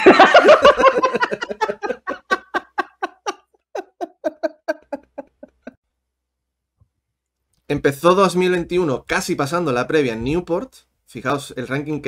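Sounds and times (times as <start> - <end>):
men laughing: 0.0 - 5.8.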